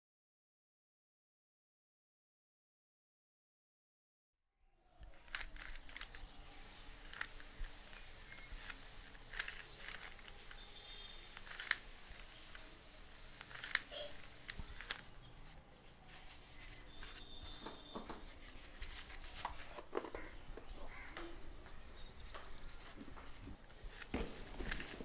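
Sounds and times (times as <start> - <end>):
small objects clicking and tapping: 5.2 - 15.4.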